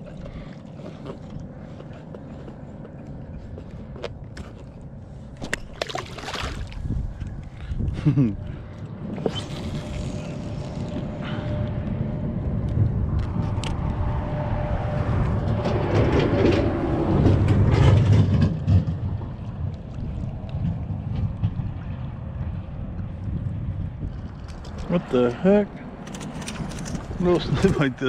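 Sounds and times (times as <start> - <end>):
water moving around kayak: 0.0 - 11.8
wind rumbling on microphone: 0.0 - 28.0.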